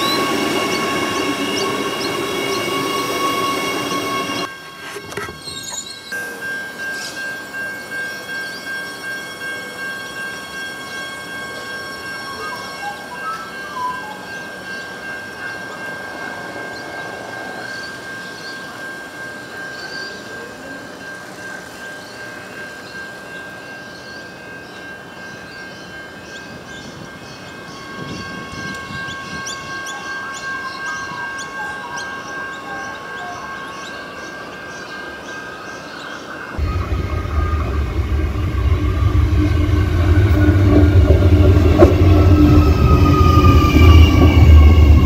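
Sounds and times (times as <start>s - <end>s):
electric train whine: 0.0s - 45.0s
low rumble: 36.6s - 45.0s.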